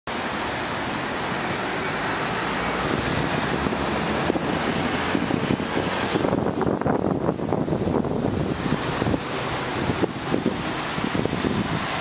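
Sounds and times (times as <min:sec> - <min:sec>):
water rushing from outfall: 0:00.1 - 0:12.0
wind buffeting microphone: 0:00.7 - 0:12.0.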